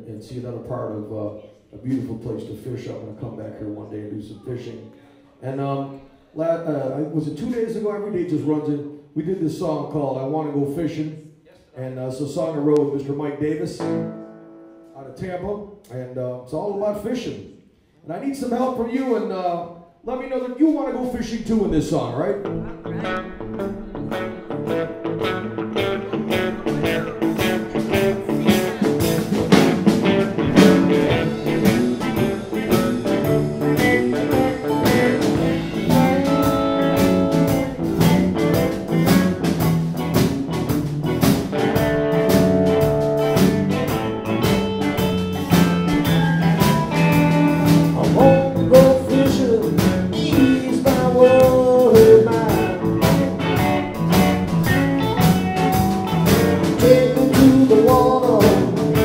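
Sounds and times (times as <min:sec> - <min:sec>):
bass guitar: 0:13.7 - 0:15.0, 0:21.2 - 0:59.0
electric guitars: 0:13.8 - 0:14.9, 0:22.4 - 0:59.0
drum kit: 0:22.4 - 0:59.0.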